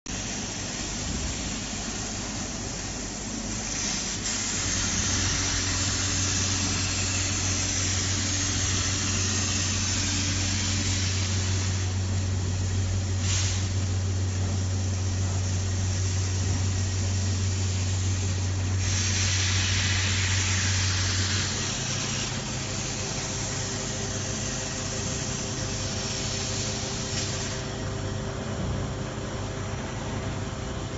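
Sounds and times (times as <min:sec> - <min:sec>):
hiss: 0:00.1 - 0:27.8
welding machine low hum: 0:00.1 - 0:30.9.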